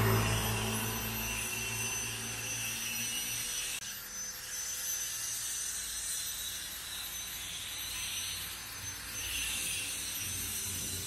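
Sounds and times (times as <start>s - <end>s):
machine hum: 0.0s - 3.8s
thin high whine: 0.0s - 11.0s.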